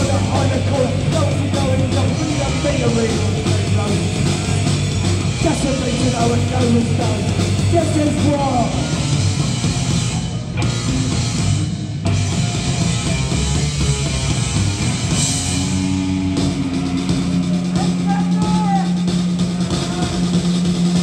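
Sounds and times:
person singing: 0:00.0 - 0:04.6
bass guitar: 0:00.0 - 0:21.0
drum kit: 0:00.0 - 0:21.0
electric guitar: 0:00.0 - 0:21.0.

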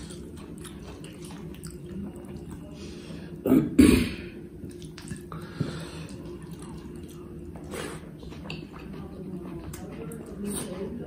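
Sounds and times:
steady low hum: 0:00.0 - 0:11.0
wet eating sounds: 0:00.0 - 0:11.0.

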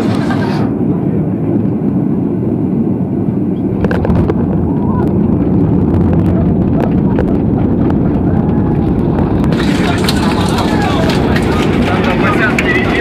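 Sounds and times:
jet engine rumble and rushing air: 0:00.0 - 0:13.0
wheels knocking on runway: 0:05.4 - 0:13.0.

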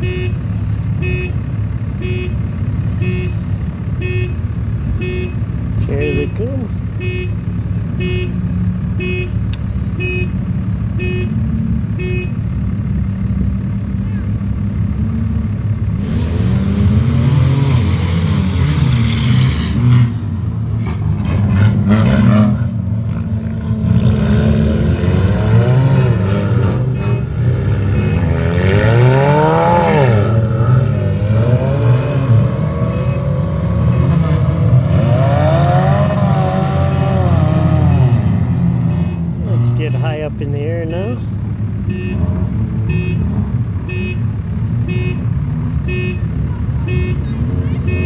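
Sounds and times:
race car engines revving: 0:00.0 - 0:48.0.

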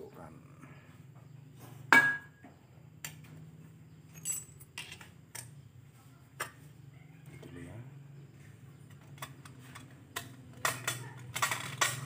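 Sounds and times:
small metal parts clinking: 0:04.0 - 0:05.6, 0:08.8 - 0:12.0.

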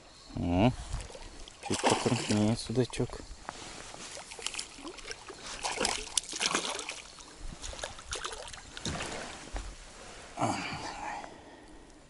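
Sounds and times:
water splashing and trickling: 0:00.8 - 0:09.7.

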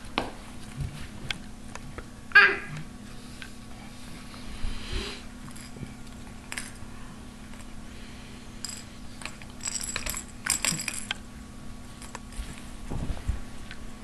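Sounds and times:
steady low hum: 0:00.0 - 0:14.0
toy ball jingling: 0:08.6 - 0:11.1.

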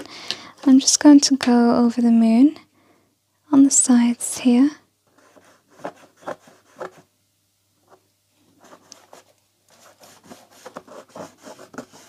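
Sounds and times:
fingertips rubbing on paper: 0:05.2 - 0:07.0, 0:08.6 - 0:12.0.

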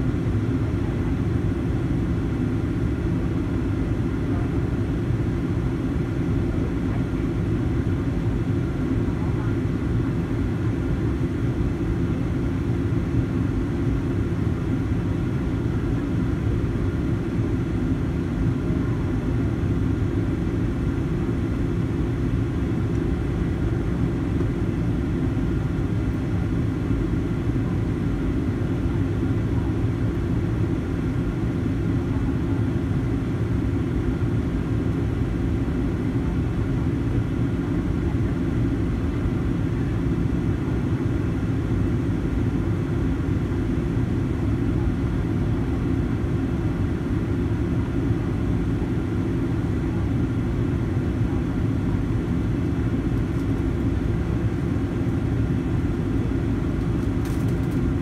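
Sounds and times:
airplane cabin engine rumble: 0:00.0 - 0:58.0.

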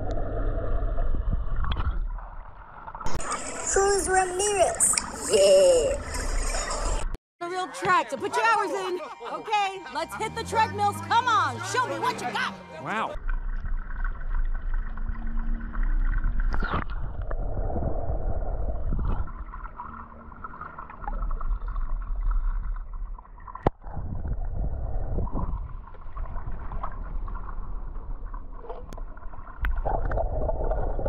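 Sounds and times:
water sloshing and gurgling: 0:00.0 - 0:07.2, 0:13.1 - 0:31.0.

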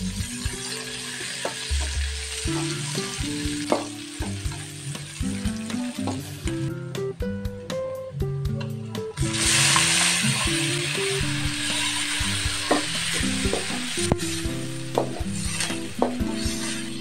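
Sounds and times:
food sizzling in hot oil: 0:00.0 - 0:06.5, 0:09.2 - 0:17.0
metal spatula scraping a wok: 0:11.5 - 0:13.2, 0:15.2 - 0:17.0.

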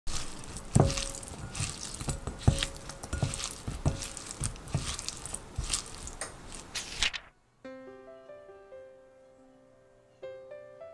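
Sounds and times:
kitchen utensils knocking and clinking: 0:00.1 - 0:05.7.

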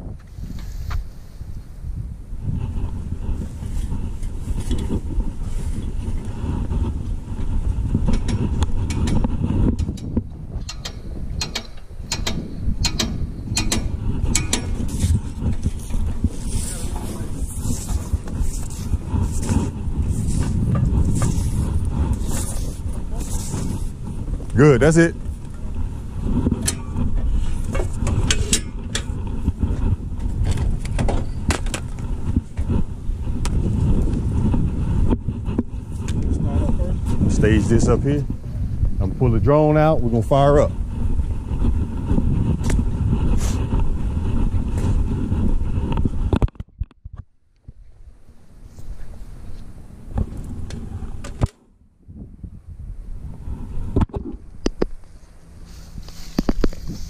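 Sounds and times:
low rumble of wind: 0:00.0 - 0:57.0
equipment clicks and knocks: 0:09.8 - 0:14.8.

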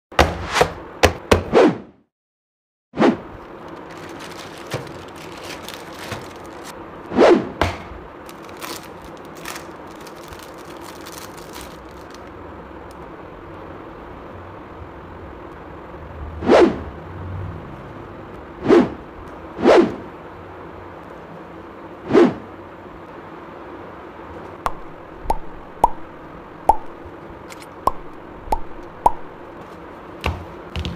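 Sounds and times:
plastic wrapping crinkling: 0:03.6 - 0:06.7, 0:08.2 - 0:12.4
swoosh: 0:16.2 - 0:17.5.

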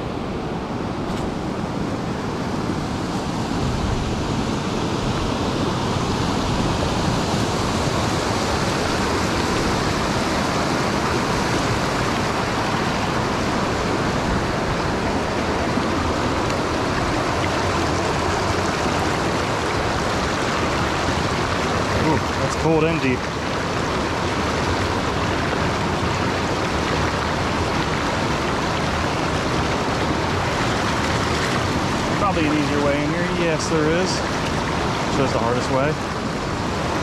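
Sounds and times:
stream rushing over rocks: 0:00.0 - 0:37.0.

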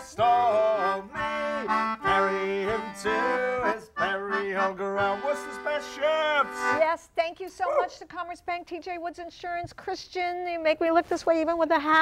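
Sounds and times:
person singing: 0:00.0 - 0:06.7
concertina playing chords: 0:00.0 - 0:07.0.

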